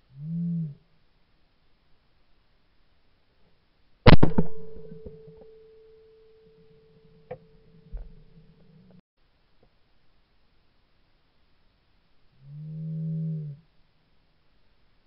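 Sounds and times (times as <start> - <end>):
shotgun shots: 4.1 - 5.4
steady ringing tone: 4.5 - 8.8.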